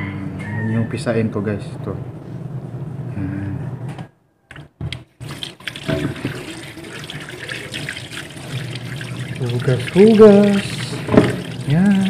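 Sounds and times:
tap water splashing into sink: 5.2 - 12.0.

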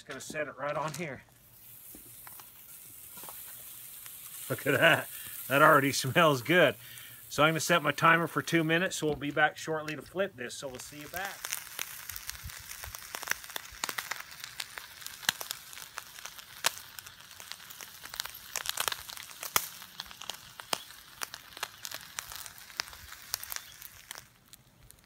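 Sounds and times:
charcoal crackling and popping: 0.0 - 25.0
steak sizzling on charcoal: 0.0 - 25.0.

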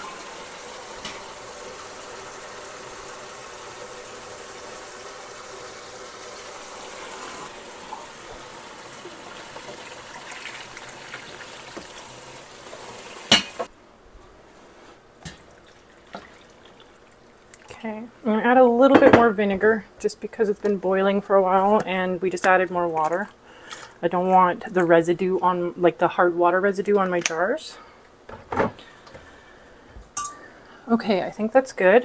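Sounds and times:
water boiling with rushing hiss: 0.0 - 13.7.

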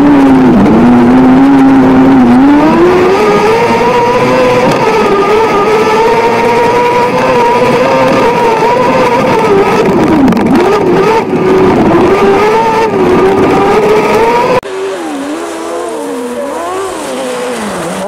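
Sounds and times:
buggy engine wavering: 0.0 - 18.0
race car engine revving: 0.0 - 18.0.

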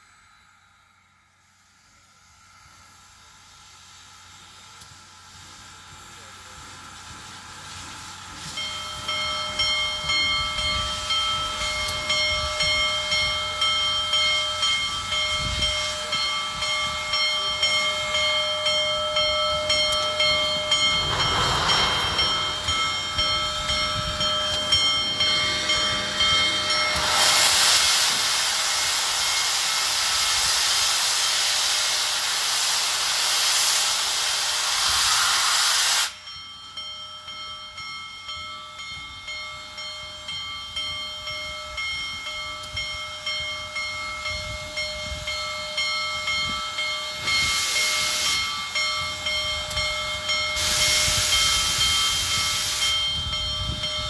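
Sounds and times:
steam hissing from cylinders: 1.4 - 54.0
steam engine pulsing beat: 7.2 - 54.0
steam whistle chord: 18.6 - 28.4, 47.2 - 53.8.

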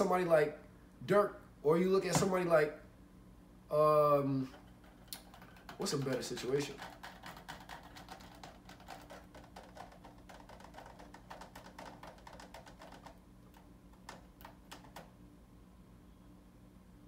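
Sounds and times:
faint rapid clicking: 5.1 - 15.1.

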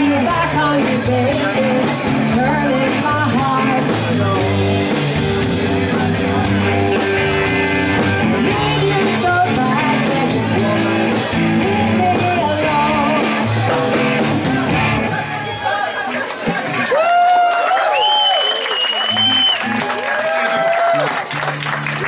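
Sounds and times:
live rock band playing: 0.0 - 16.9.

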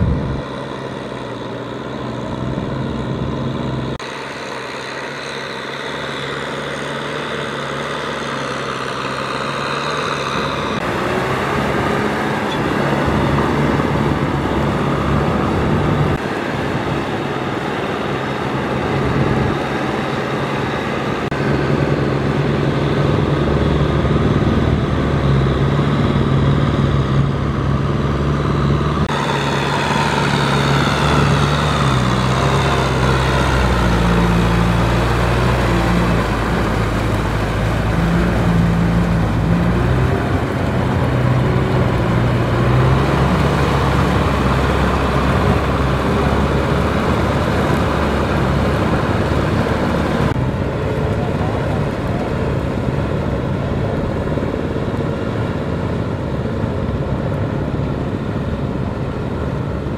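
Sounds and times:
tiller churning mud: 0.0 - 59.9
tractor diesel engine running: 0.0 - 59.9
water splashing: 28.8 - 54.4.

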